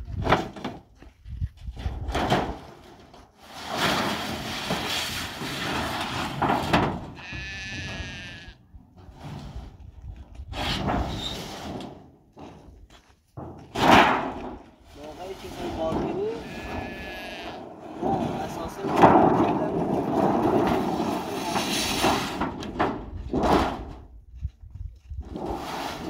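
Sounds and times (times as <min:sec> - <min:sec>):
sheep or goat bleating: 0:07.1 - 0:08.7, 0:16.3 - 0:17.7.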